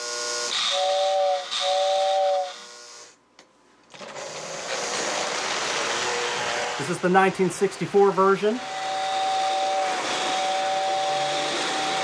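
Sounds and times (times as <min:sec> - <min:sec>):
two-note air whistle blasts: 0:00.7 - 0:02.6, 0:08.6 - 0:12.0
rushing hiss: 0:08.6 - 0:12.0.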